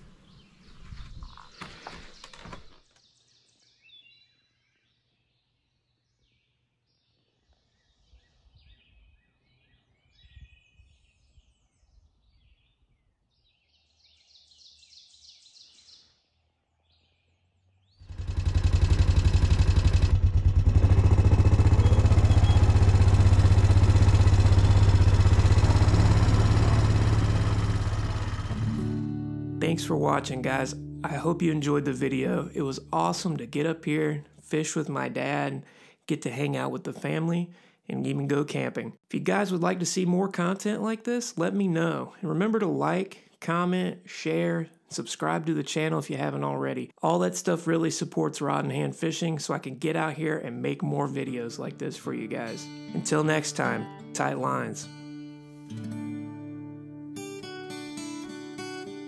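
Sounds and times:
faint birds chirping: 0:00.0 - 0:18.2, 0:20.8 - 0:25.2
atv engine running: 0:18.0 - 0:33.5.

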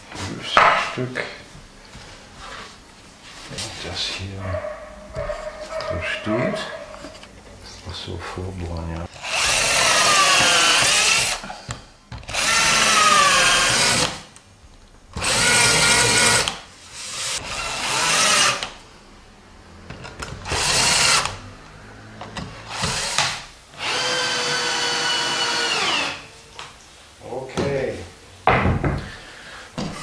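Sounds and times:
cordless drill drilling into wood: 0:09.2 - 0:11.4, 0:12.3 - 0:14.2, 0:15.2 - 0:18.7, 0:20.4 - 0:21.4, 0:22.7 - 0:26.3.

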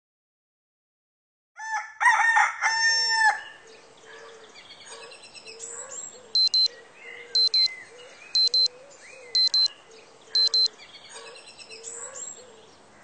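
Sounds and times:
rooster crowing: 0:01.6 - 0:03.6
faint birds chirping: 0:03.4 - 0:13.0
phone alarm double beeps: 0:06.4 - 0:06.7, 0:07.4 - 0:07.7, 0:08.4 - 0:08.7, 0:09.4 - 0:09.7, 0:10.4 - 0:10.7.

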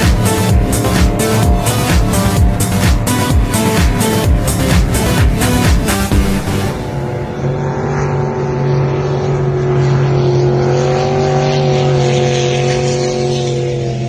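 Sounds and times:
boat engine running at high speed: 0:00.0 - 0:14.0.

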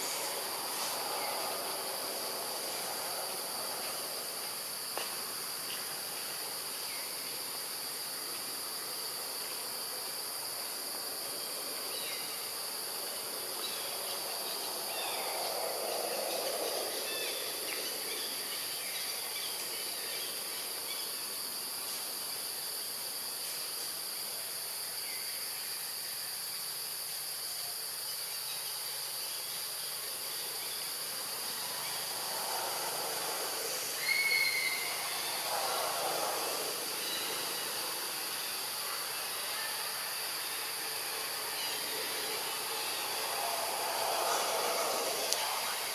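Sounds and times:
forest insects droning: 0:00.0 - 0:45.9
faint chirps: 0:31.5 - 0:45.9.

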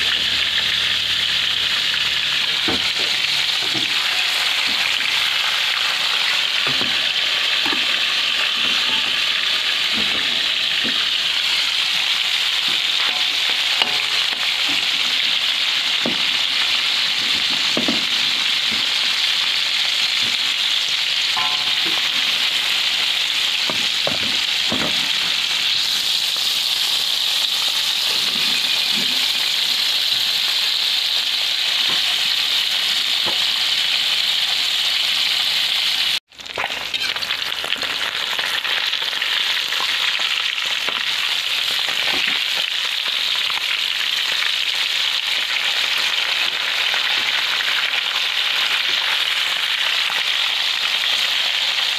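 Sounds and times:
fish sizzling in hot oil: 0:00.0 - 0:51.9
oil popping and spattering: 0:36.3 - 0:43.6.

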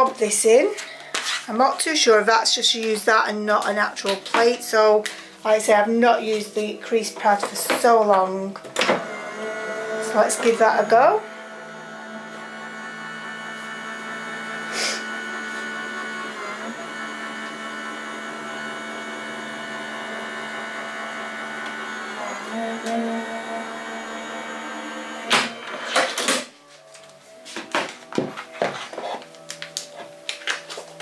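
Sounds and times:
die-cutting machine motor running: 0:08.7 - 0:26.3.

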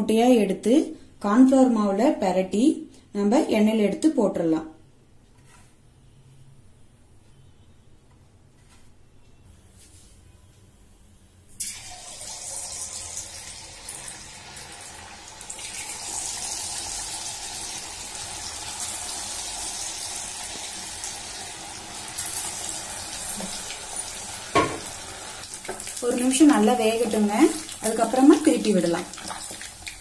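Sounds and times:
hot oil sizzling: 0:11.6 - 0:30.0.

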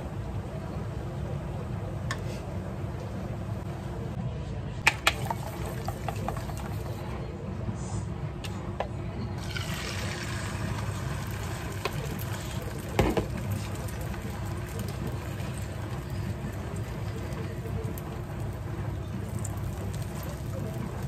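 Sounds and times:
kitchen hum: 0:00.0 - 0:21.0
egg sizzling in frying pan: 0:09.4 - 0:21.0.

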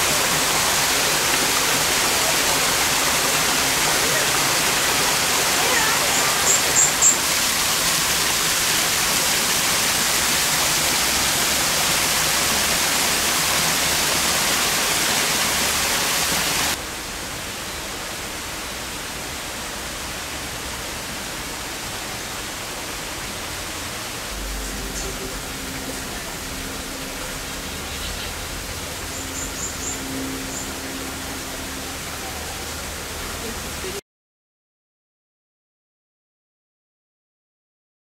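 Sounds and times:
small waterfall splashing: 0:00.0 - 0:34.0.

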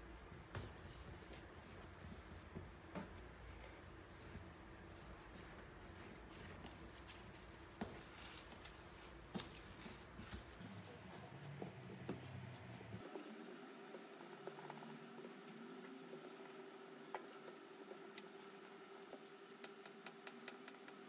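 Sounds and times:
palms rubbing dough: 0:00.0 - 0:15.4.

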